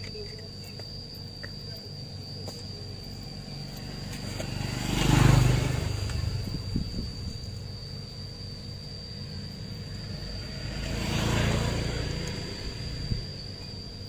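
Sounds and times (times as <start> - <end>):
high insect drone: 0.0 - 14.0
vehicle engine passing by: 3.3 - 14.0.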